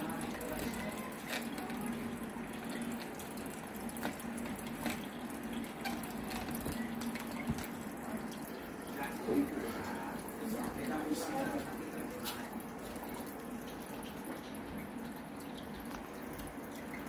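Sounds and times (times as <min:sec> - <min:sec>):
water trickling into fish tank: 0:00.0 - 0:17.0.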